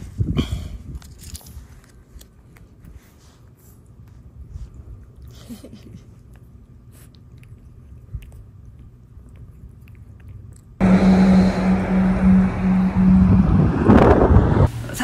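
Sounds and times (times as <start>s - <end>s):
wind noise on microphone: 0.0s - 1.8s, 12.3s - 14.7s
steady low hum: 0.0s - 15.0s
cat chewing a treat: 1.2s - 10.8s.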